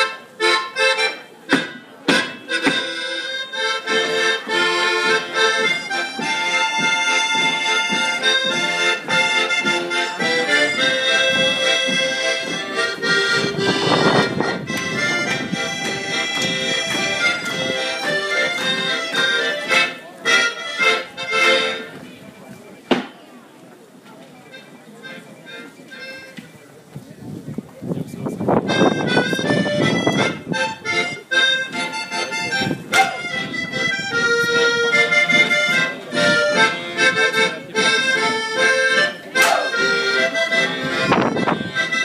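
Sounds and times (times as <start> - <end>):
accordion folk dance tune: 0.0 - 22.3, 24.4 - 27.0, 28.2 - 42.0
sharp percussive strikes: 32.9 - 33.3, 39.4 - 39.8.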